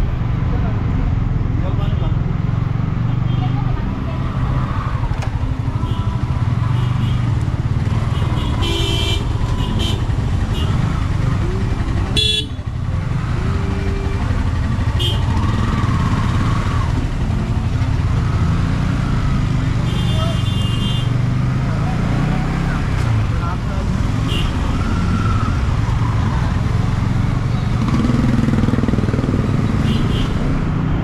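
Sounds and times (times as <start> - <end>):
motorcycle engine running: 0.6 - 31.0
vehicle horns honking: 5.7 - 7.4, 8.0 - 10.8, 12.1 - 12.7, 14.8 - 15.6, 19.8 - 21.2, 24.2 - 24.8, 29.8 - 30.5.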